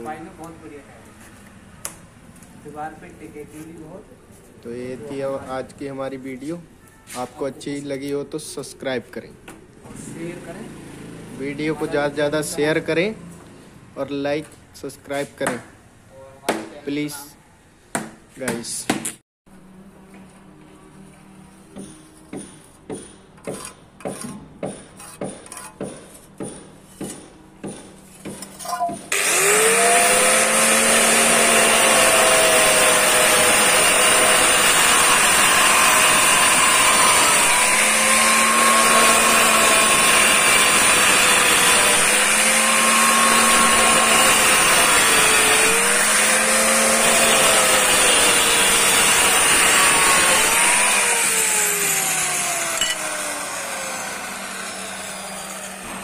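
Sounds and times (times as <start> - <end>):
electric tile cutter whining: 29.1 - 56.0.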